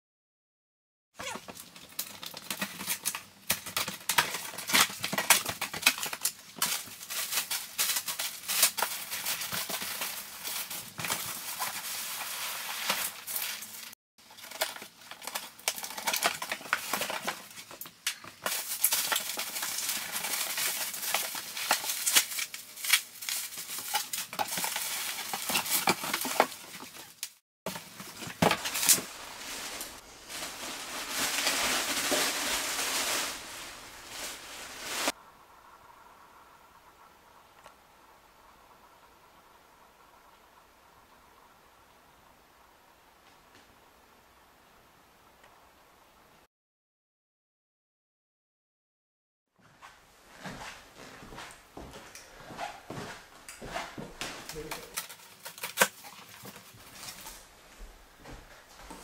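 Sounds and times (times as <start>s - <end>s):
packing materials crinkling: 1.2s - 35.2s, 54.4s - 57.5s.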